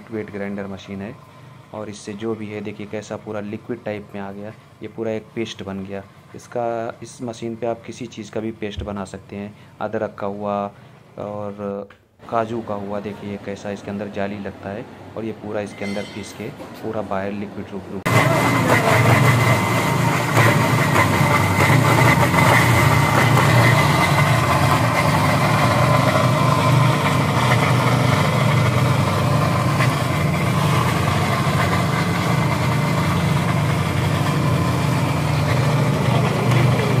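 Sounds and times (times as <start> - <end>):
wet grinder humming: 18.1 - 37.0.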